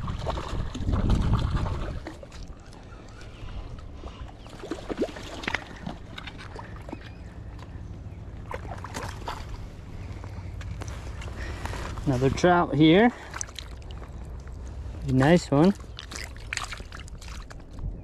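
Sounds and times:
wind on microphone: 0:00.0 - 0:02.4, 0:17.5 - 0:18.0
fish splashing at water surface: 0:04.4 - 0:07.0, 0:08.4 - 0:09.7, 0:13.1 - 0:14.5, 0:15.7 - 0:17.6.

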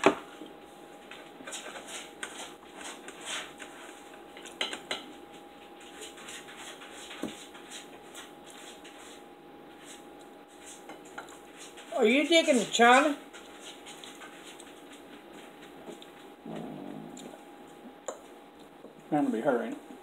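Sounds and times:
cutlery clinking on plates: 0:04.4 - 0:05.2.

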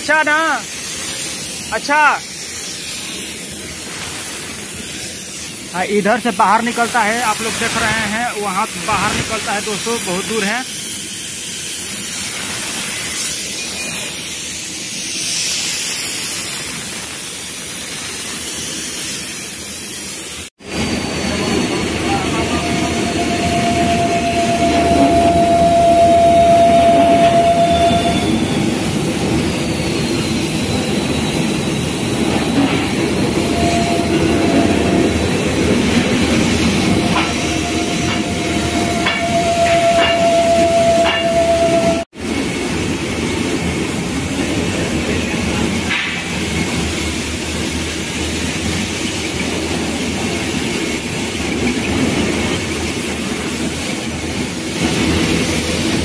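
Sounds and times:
paint spray hissing: 0:00.6 - 0:08.8, 0:09.4 - 0:20.5
machinery running: 0:20.6 - 0:42.0
steady whine: 0:20.6 - 0:42.1.

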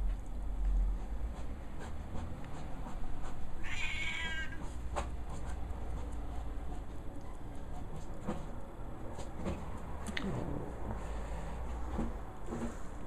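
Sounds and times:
cat meowing: 0:03.6 - 0:04.6.

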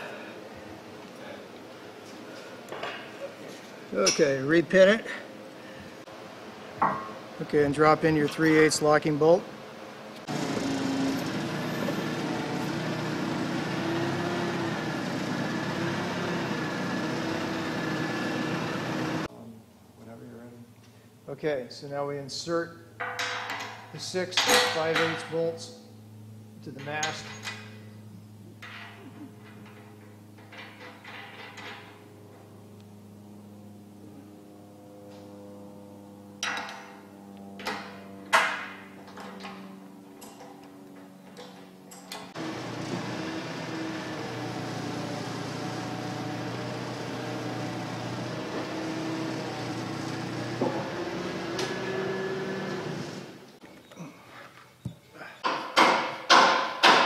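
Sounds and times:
forklift engine running: 0:10.2 - 0:19.3, 0:40.7 - 0:53.6
steady electrical hum: 0:19.2 - 0:42.4.

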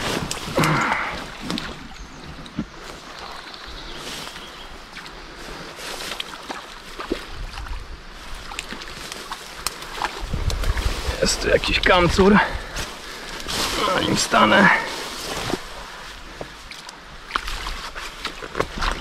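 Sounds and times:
rustling and scraping in brush: 0:00.0 - 0:07.2, 0:08.2 - 0:19.0
footsteps on riverbank: 0:00.0 - 0:19.0
river water running: 0:00.0 - 0:19.0
wind buffeting microphone: 0:10.0 - 0:13.9.

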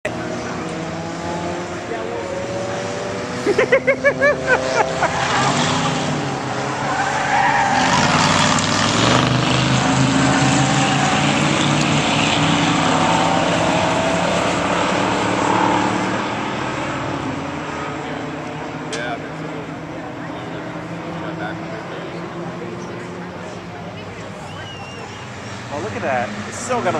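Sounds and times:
racing car engines: 0:00.0 - 0:26.9
tire squeal: 0:06.6 - 0:14.6, 0:24.4 - 0:25.6.

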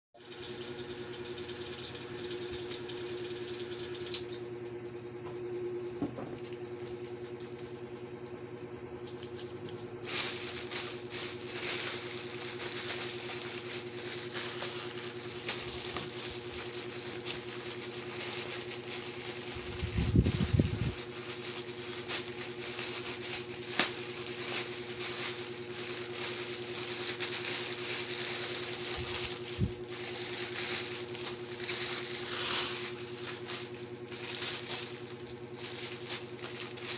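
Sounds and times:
steady low hum: 0:02.6 - 0:36.9
plastic bags crinkling: 0:09.1 - 0:36.9.

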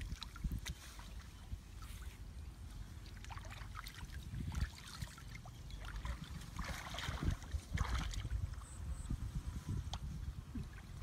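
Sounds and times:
hands sloshing in muddy water: 0:00.0 - 0:08.6
small splashes and drips: 0:00.0 - 0:08.6.

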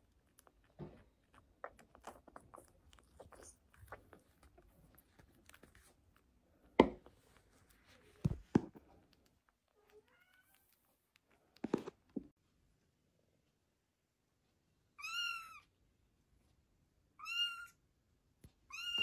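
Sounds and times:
kitten sucking at bottle: 0:00.0 - 0:06.4.

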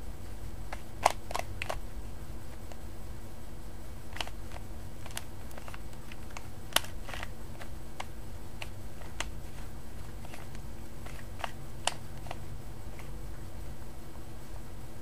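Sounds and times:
low hum: 0:00.0 - 0:15.0
puzzle cube clicking: 0:00.7 - 0:01.8, 0:04.1 - 0:13.1.

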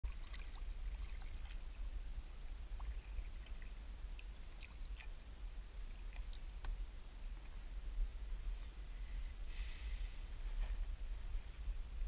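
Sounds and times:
light water splashes: 0:00.0 - 0:07.8
low steady rumble: 0:00.0 - 0:12.0.

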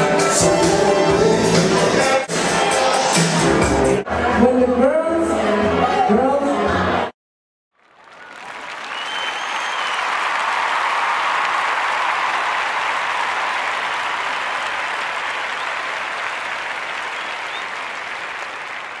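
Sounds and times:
crowd applauding: 0:07.8 - 0:19.0.

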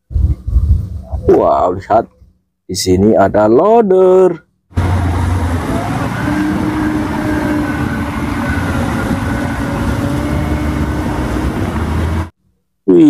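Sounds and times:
diesel engine running: 0:04.7 - 0:12.4
steady whining tone: 0:04.7 - 0:12.4.

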